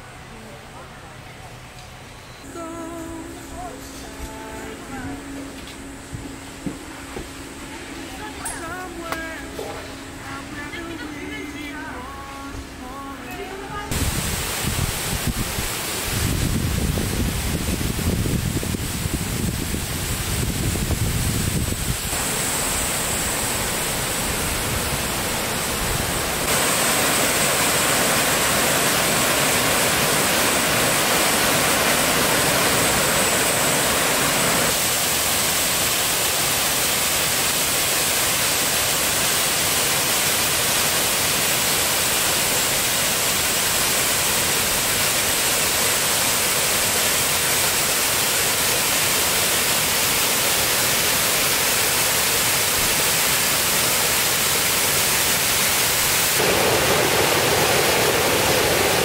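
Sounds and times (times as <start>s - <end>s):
rushing water: 13.9s - 59.0s.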